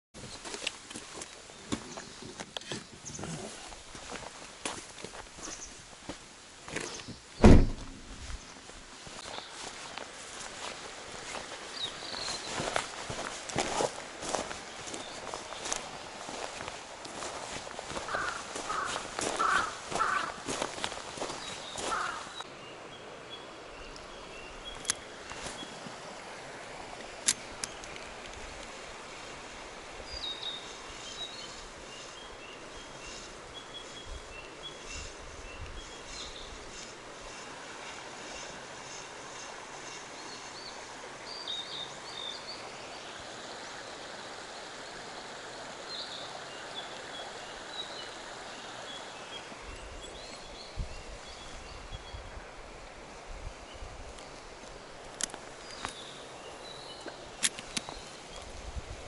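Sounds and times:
flowing stream water: 0:00.2 - 0:59.0
footsteps crunching on gravel: 0:03.3 - 0:07.0, 0:07.7 - 0:22.3
low bumps: 0:07.1 - 0:08.6.

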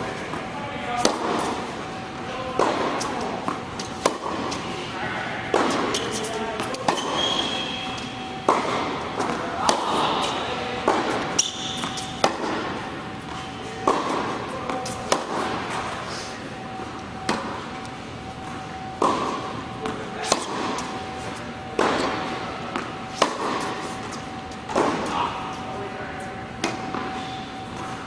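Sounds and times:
steady high hum: 0:00.0 - 0:28.0
tennis ball hits echoing: 0:01.0 - 0:01.6, 0:02.6 - 0:04.6, 0:05.5 - 0:12.8, 0:13.8 - 0:15.8, 0:19.0 - 0:21.0, 0:21.8 - 0:23.8, 0:24.7 - 0:25.2.

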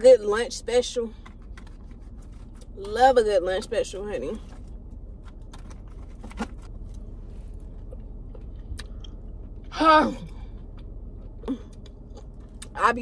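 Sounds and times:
person chewing food: 0:05.1 - 0:12.8.

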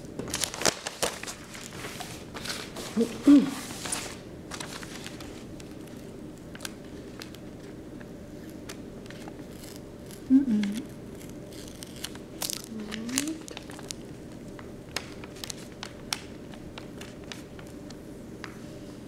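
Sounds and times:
tape peeling off paper: 0:03.8 - 0:18.0.

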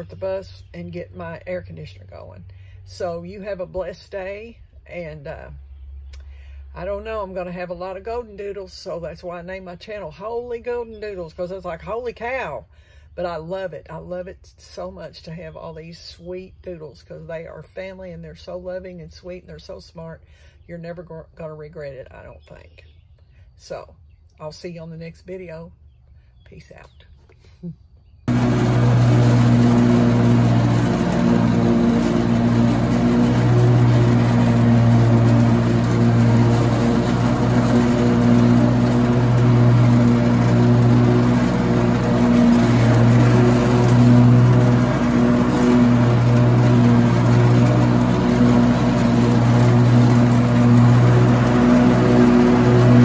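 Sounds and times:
lawn mower engine running: 0:00.0 - 0:12.6, 0:28.3 - 0:53.0.

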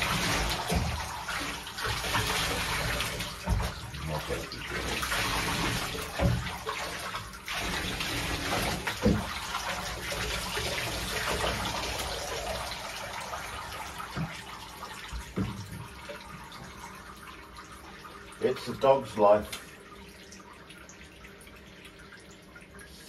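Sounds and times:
water splashing in bathtub: 0:00.0 - 0:23.0.

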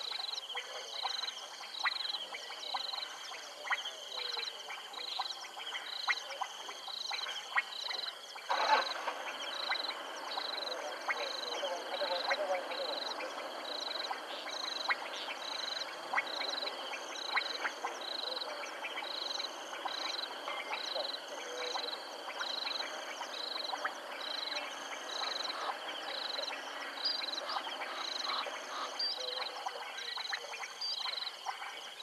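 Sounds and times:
high trilling frog call: 0:07.0 - 0:31.3.

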